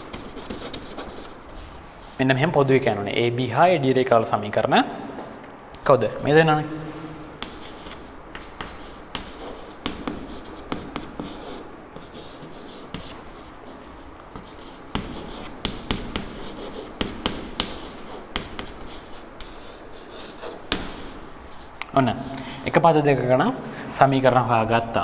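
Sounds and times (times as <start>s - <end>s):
chalk tapping and scratching: 0.0s - 2.2s, 7.3s - 22.3s.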